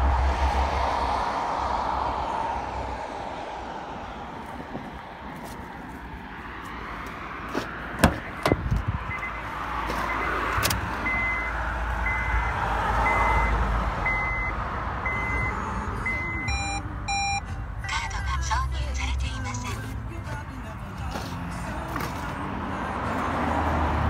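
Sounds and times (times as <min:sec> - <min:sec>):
car door clunks: 0:07.5 - 0:09.3
car warning chime beeping: 0:08.2 - 0:18.1.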